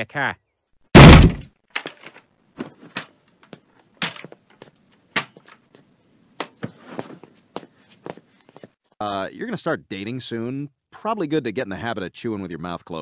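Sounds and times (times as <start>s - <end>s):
metal walking frame clattering: 1.7s - 5.7s.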